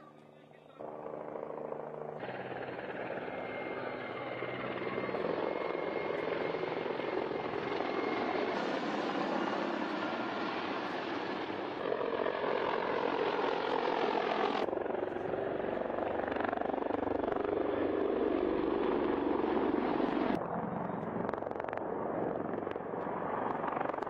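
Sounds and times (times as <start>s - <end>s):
helicopter rotor and engine: 0.0s - 24.0s
high turbine whine: 0.8s - 14.9s.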